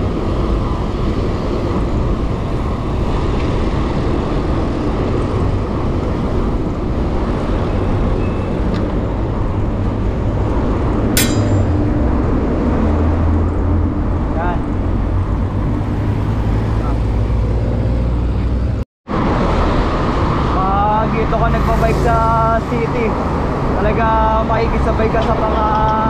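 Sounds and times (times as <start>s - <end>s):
traffic and road noise: 0.0s - 26.0s
sharp click: 11.2s - 11.9s.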